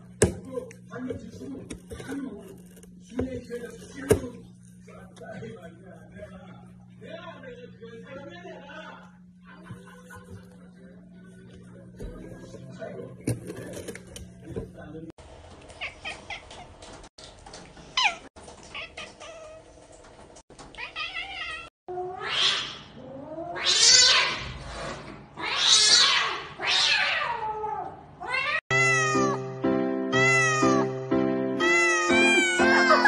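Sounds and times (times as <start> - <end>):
cat yowling: 20.8 - 24.4, 25.4 - 29.4, 31.6 - 33.0.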